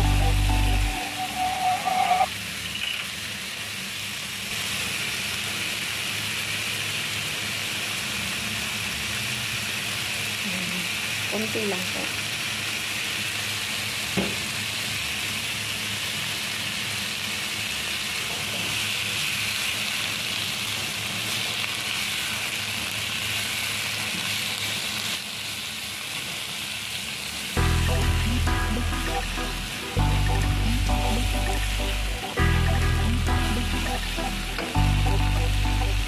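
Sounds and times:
music with heavy low beat: 0.0 - 1.0, 27.6 - 36.0
vegetables sizzling in oil: 0.0 - 36.0.

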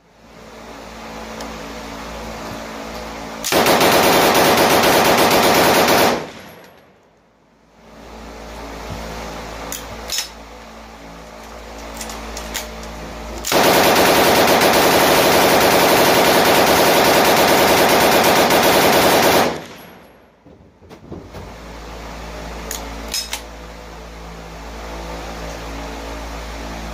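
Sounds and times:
machine gun firing burst: 3.5 - 6.8, 13.5 - 20.0.

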